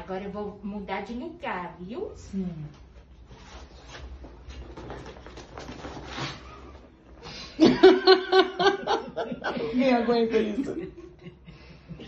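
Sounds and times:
woman laughing loudly: 0:07.6 - 0:11.5.

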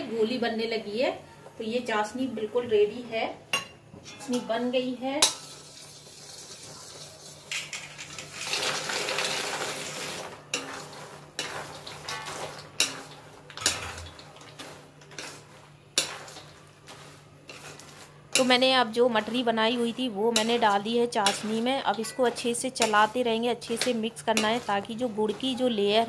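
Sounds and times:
spoon clinking in steel pan: 0:03.5 - 0:05.8, 0:20.3 - 0:24.7
spoon scraping pan: 0:03.6 - 0:26.0
pieces clattering into pan: 0:05.2 - 0:18.7.

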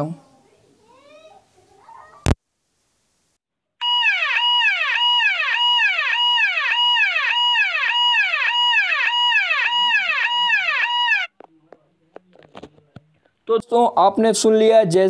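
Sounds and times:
electronic police siren tone: 0:03.8 - 0:11.3.

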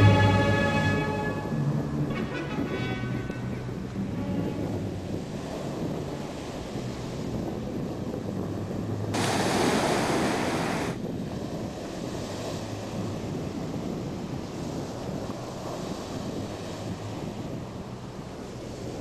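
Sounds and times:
ocean surf washing onto beach: 0:00.0 - 0:19.0
wind on microphone: 0:00.0 - 0:19.0.

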